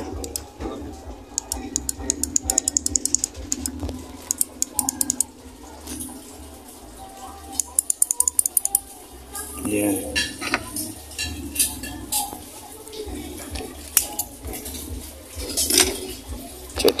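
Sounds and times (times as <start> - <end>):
microswitch clicking rapidly: 1.4 - 5.3.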